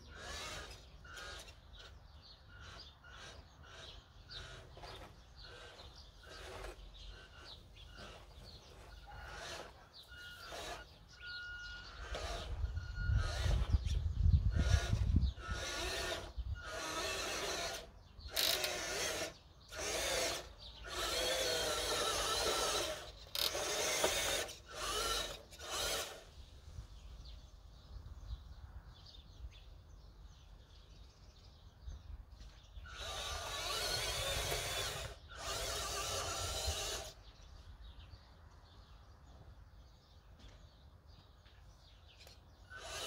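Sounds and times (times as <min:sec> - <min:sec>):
toy truck electric motor whining: 0:00.0 - 0:26.4, 0:32.8 - 0:37.3, 0:42.7 - 0:43.0.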